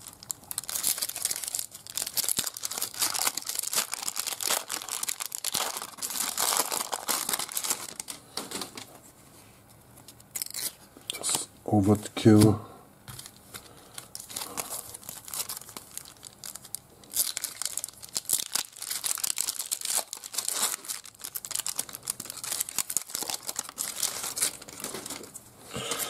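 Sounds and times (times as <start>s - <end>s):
wrapper tearing and crinkling: 0.0s - 8.9s, 10.3s - 11.4s, 13.2s - 25.4s.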